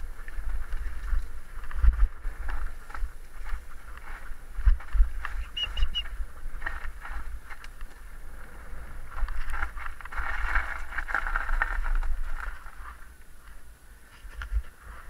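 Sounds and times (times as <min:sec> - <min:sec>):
bike knocking and rattling: 0:00.0 - 0:15.0
bike tyres crunching on dirt: 0:00.0 - 0:15.0
wind buffeting microphone: 0:00.0 - 0:15.0
short high chirps: 0:05.4 - 0:06.1.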